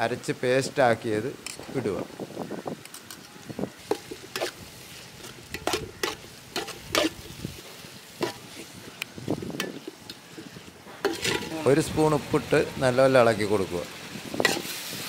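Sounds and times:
soft sizzle of frying: 0.0s - 15.0s
ladle scraping metal pot: 3.8s - 7.4s, 10.9s - 11.7s, 14.4s - 14.8s.

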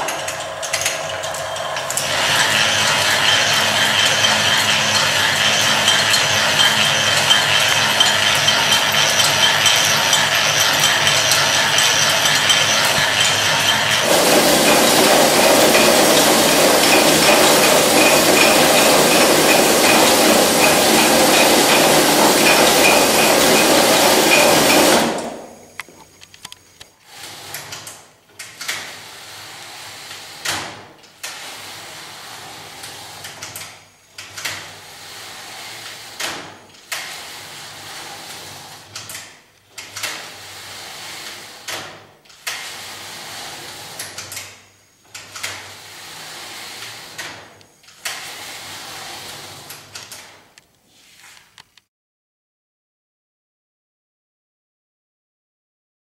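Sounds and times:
knitting machine carriage clicks and knocks: 0.0s - 25.5s
knitting machines clattering: 0.0s - 25.8s.

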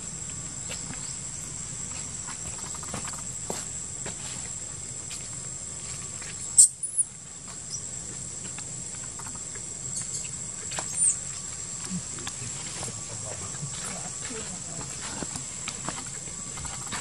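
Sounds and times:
high-pitched insect drone: 0.0s - 17.0s
high chirping squeaks: 6.6s - 7.1s, 10.0s - 11.2s.

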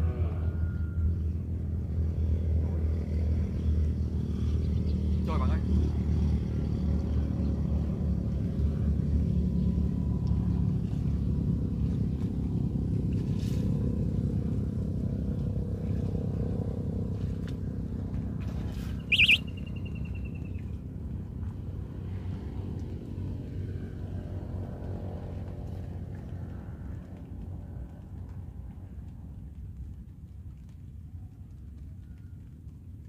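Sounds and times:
low engine rumble: 0.0s - 33.0s
sharp high-pitched chirp: 19.1s - 20.5s.

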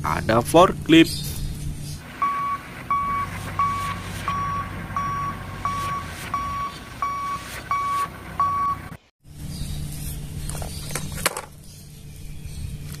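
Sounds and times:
low machine hum: 1.5s - 9.0s
reversing alarm beeping: 2.1s - 9.0s.

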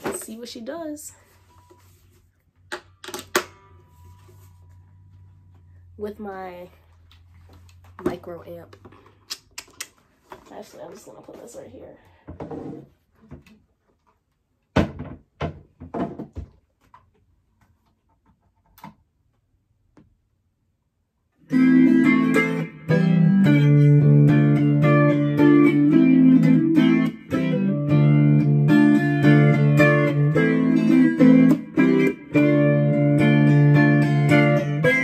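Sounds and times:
electric ukulele plucked notes: 21.4s - 35.0s.

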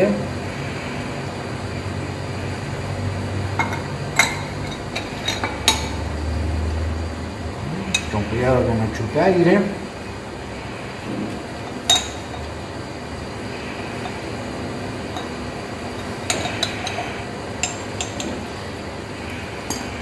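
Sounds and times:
background hum: 0.0s - 20.0s
glass and brass clinking: 3.6s - 6.0s, 11.8s - 12.5s, 16.0s - 18.5s, 19.6s - 20.0s.

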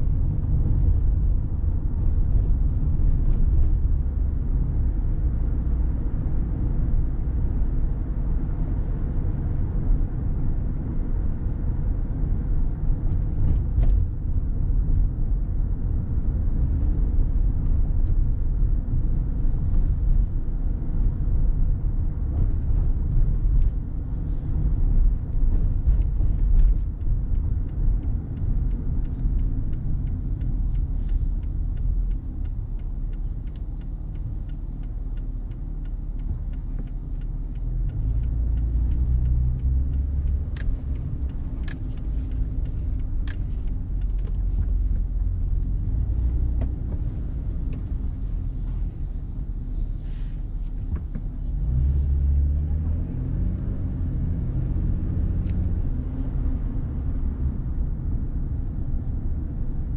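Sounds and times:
car road and engine rumble: 0.0s - 59.9s
faint regular ticking: 26.9s - 46.4s.

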